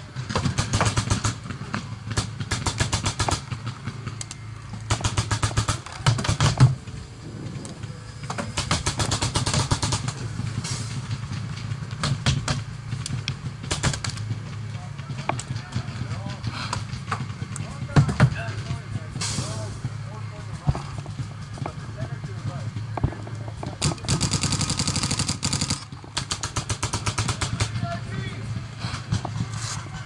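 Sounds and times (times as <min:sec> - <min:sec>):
low steady hum: 0:00.0 - 0:30.0
paintball markers firing: 0:00.3 - 0:06.8, 0:08.6 - 0:10.2, 0:12.0 - 0:14.2, 0:23.8 - 0:27.8.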